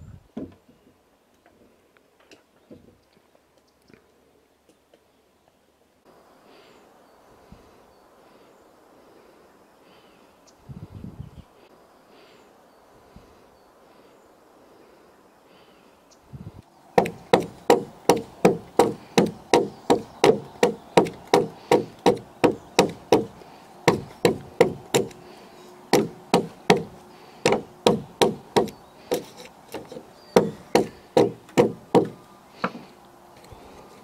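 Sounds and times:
hatchet chopping log: 0:17.0 - 0:25.2, 0:25.9 - 0:32.8.

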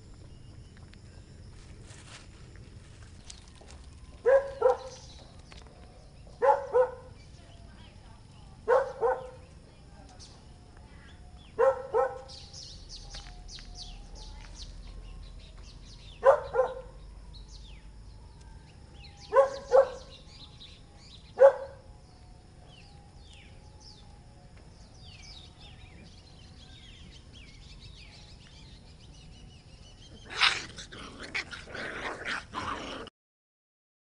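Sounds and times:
small birds chirping: 0:00.1 - 0:33.1
puppies barking: 0:04.2 - 0:05.0, 0:06.4 - 0:07.1, 0:11.6 - 0:12.3, 0:16.2 - 0:16.9, 0:19.3 - 0:20.1, 0:30.2 - 0:31.5.

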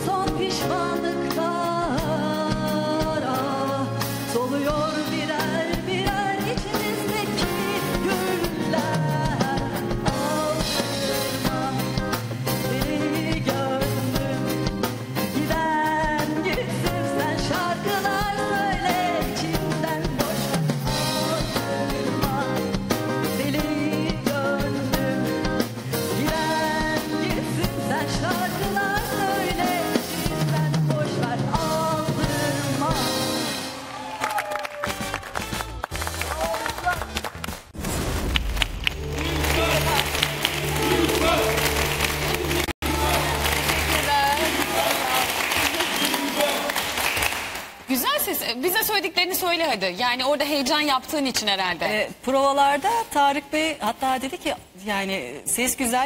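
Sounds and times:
woman singing into microphone: 0:00.0 - 0:33.5
live band playing: 0:00.0 - 0:37.7, 0:38.4 - 0:51.5
instrumental accompaniment with drums: 0:00.0 - 0:47.0.

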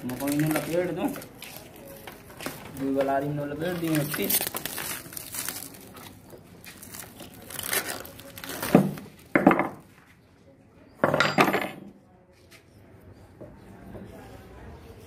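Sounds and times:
plastic wrapping crinkling: 0:00.0 - 0:09.4
knocks and clinks: 0:11.0 - 0:12.0.

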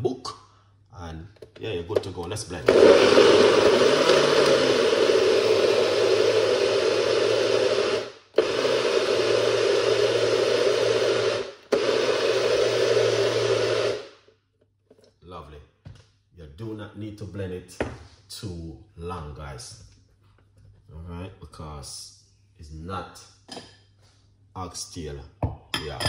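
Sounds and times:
blender running: 0:02.6 - 0:14.2.

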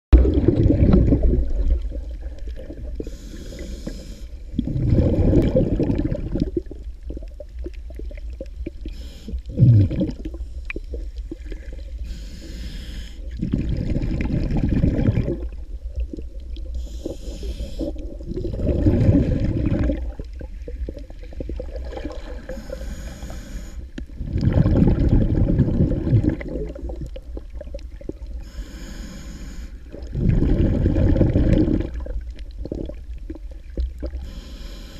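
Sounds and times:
faint hissing: 0:01.2 - 0:24.2, 0:26.6 - 0:31.0, 0:33.6 - 0:34.9
muffled breathing through a snorkel: 0:02.6 - 0:05.6, 0:08.8 - 0:14.0, 0:16.7 - 0:20.0, 0:22.2 - 0:24.0, 0:28.4 - 0:31.7, 0:34.1 - 0:34.9.

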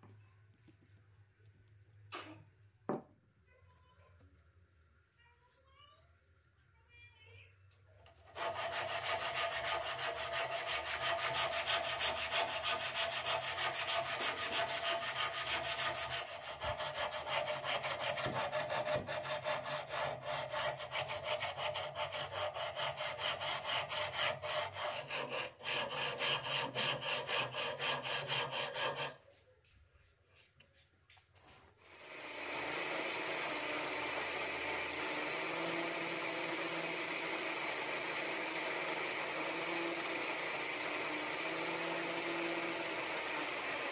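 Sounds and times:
sandpaper rubbing on wood: 0:08.3 - 0:29.4
electric drill running: 0:31.9 - 0:43.9.

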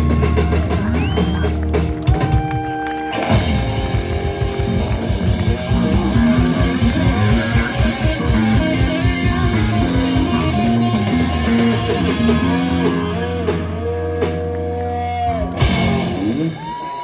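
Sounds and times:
live rock band: 0:00.0 - 0:17.0.

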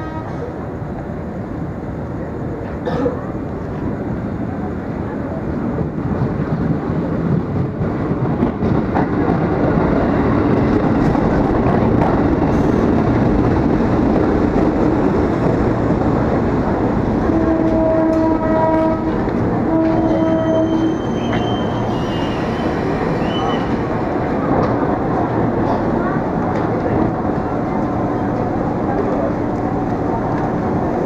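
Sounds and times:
electric train slowing to a stop: 0:16.2 - 0:24.7.

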